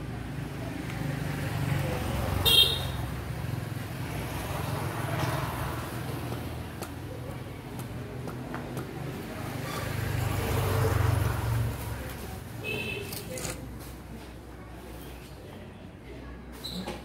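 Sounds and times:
motorbike passing by: 0:00.1 - 0:07.2, 0:08.9 - 0:12.6.

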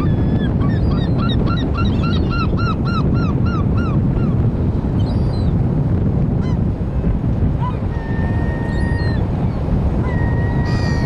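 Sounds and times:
loud steady wind: 0:00.0 - 0:11.0
surf: 0:00.0 - 0:11.0
gull calling: 0:10.0 - 0:11.0.

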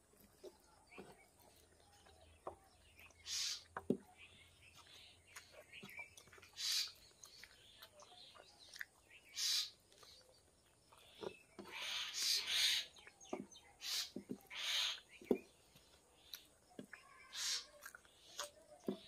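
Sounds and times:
lip smacks: 0:17.6 - 0:18.6.

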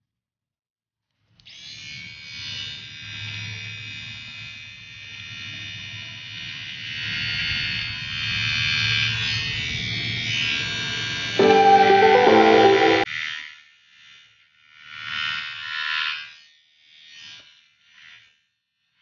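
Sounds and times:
plucked-string music: 0:11.4 - 0:13.1.

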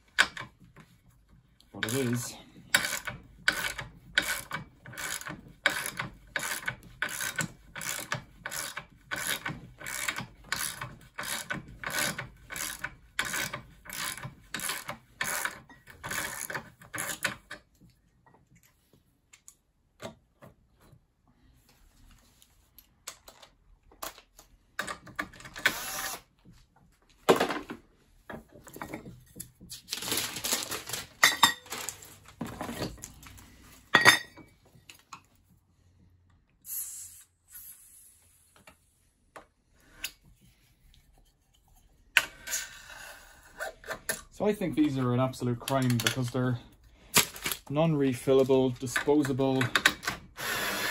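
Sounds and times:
bottles and tools clattering: 0:31.2 - 0:33.2, 0:33.8 - 0:34.5.

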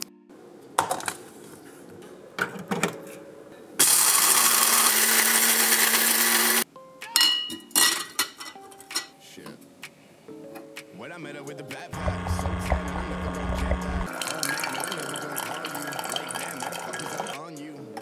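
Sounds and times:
coffee grinder whirring: 0:03.8 - 0:06.6, 0:12.0 - 0:14.4.

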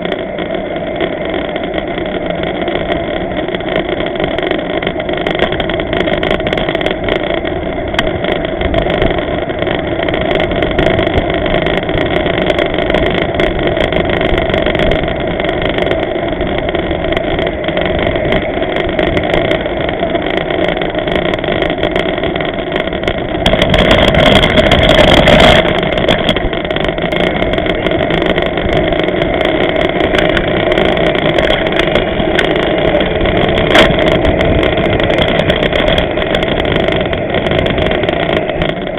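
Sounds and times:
bicycle rolling noise: 0:00.0 - 0:38.9
wind noise on microphone: 0:00.0 - 0:38.9.

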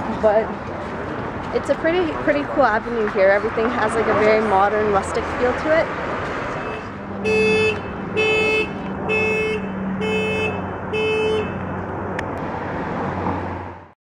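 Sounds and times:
car horn honks: 0:06.5 - 0:11.7.

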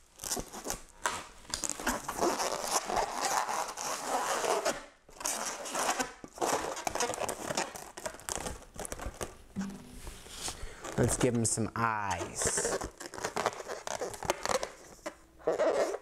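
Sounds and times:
balloon rubbing and crinkling: 0:00.0 - 0:16.0.

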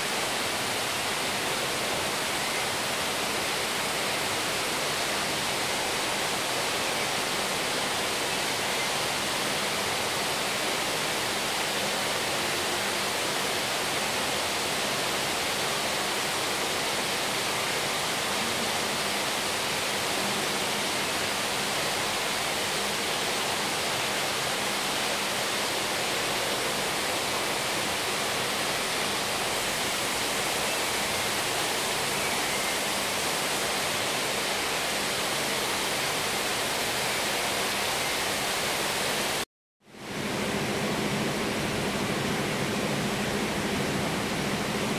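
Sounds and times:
steady rushing noise: 0:40.0 - 0:44.9.

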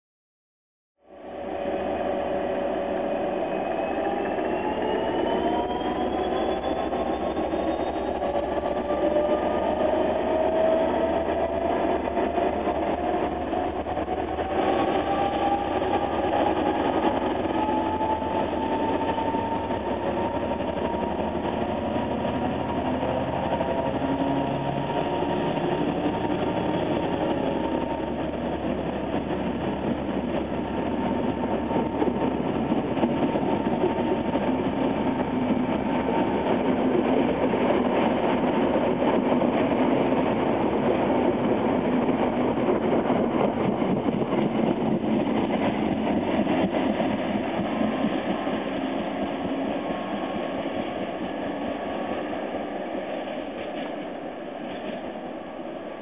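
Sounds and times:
train wheels on rails: 0:01.4 - 0:56.0.

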